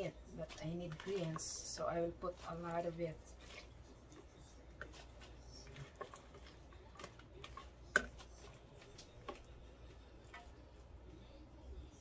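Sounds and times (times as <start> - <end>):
vegetables tapping into a metal pot: 6.0 - 8.4.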